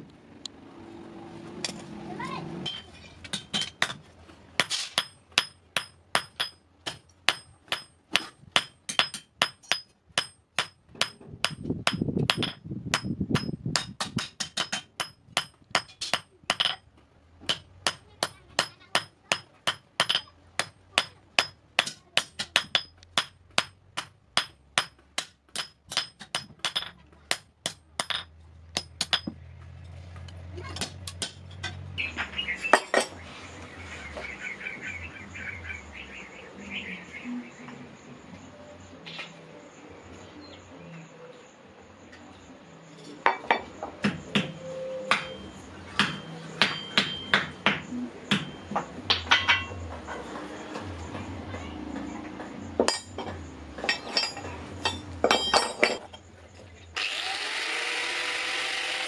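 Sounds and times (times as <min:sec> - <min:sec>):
hammer striking hot iron on anvil: 0:04.6 - 0:16.8, 0:17.5 - 0:29.4, 0:45.1 - 0:45.4, 0:46.0 - 0:49.8.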